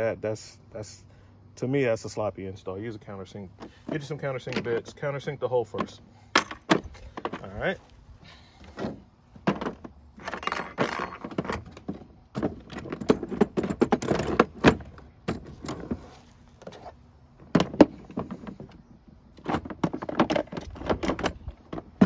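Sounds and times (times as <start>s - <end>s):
knocks and thunks: 8.6s - 16.0s, 17.4s - 18.8s
metal tools clattering: 10.2s - 11.7s.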